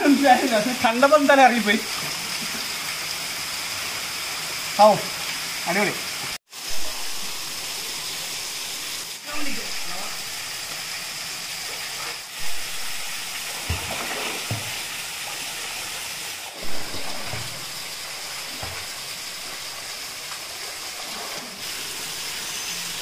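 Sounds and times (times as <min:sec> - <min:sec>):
water splashing: 0:00.0 - 0:23.0
waterfall rushing: 0:06.6 - 0:10.6, 0:16.5 - 0:23.0.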